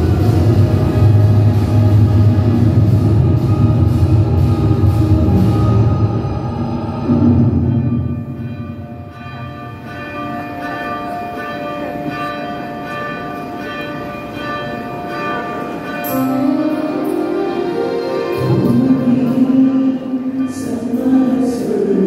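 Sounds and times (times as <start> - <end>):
music: 0.0 - 9.1, 16.0 - 22.0
church bells pealing: 0.0 - 22.0.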